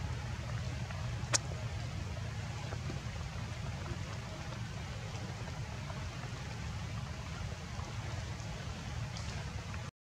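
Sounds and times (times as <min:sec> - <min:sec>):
constant low rumble: 0:00.0 - 0:09.9.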